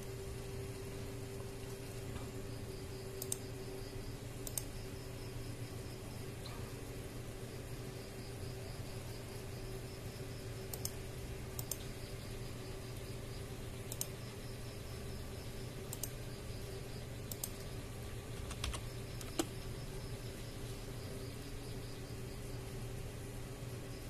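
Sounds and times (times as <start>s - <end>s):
steady low hum: 0.0s - 24.0s
computer mouse clicking: 3.2s - 3.5s, 4.4s - 4.8s, 10.7s - 11.0s, 11.6s - 11.9s, 13.9s - 14.2s, 15.9s - 16.2s, 17.3s - 17.7s, 18.3s - 19.6s.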